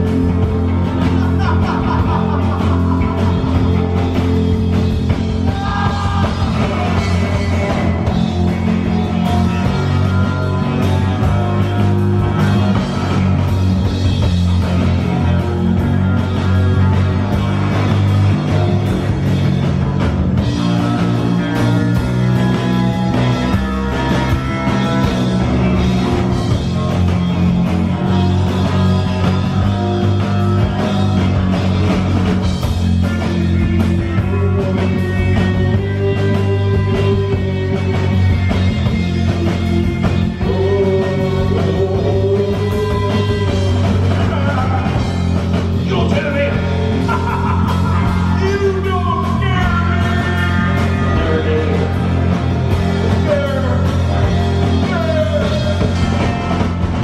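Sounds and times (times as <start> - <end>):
bass guitar: 0.0 - 57.0
drum kit: 0.0 - 57.0
electric guitars: 0.0 - 57.0
man singing: 1.0 - 12.8, 33.1 - 56.6.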